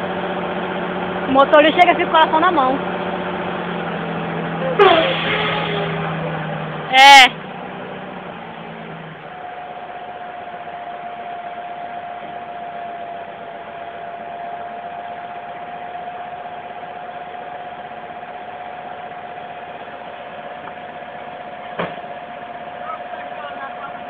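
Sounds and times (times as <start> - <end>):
truck engine idling: 0.0 - 24.0
brief knock: 21.8 - 22.0.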